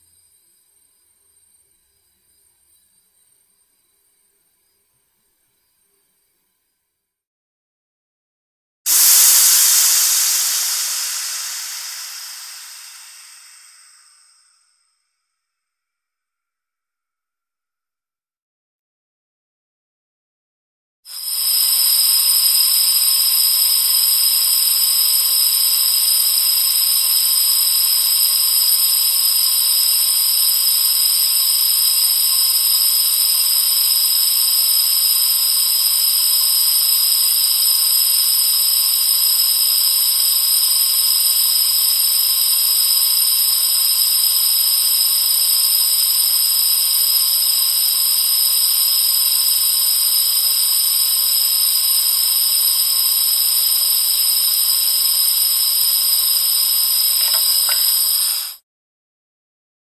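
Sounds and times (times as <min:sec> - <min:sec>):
gas hissing from valve: 0:08.9 - 0:14.5, 0:21.1 - 0:58.6.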